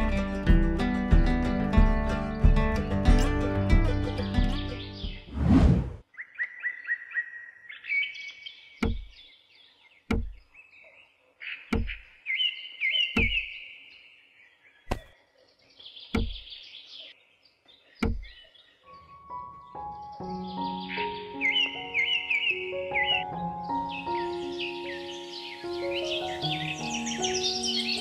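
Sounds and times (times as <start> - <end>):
birds chirping: 1.7 - 5.3, 6.0 - 28.0
short whoosh: 5.3 - 6.0
clay bricks knocked into place: 14.9 - 15.1.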